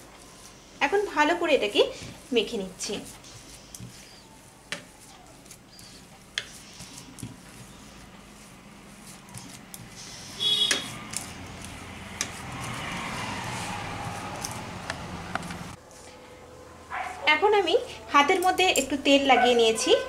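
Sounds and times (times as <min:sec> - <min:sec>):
hand squishing soft mash: 0:00.0 - 0:15.0.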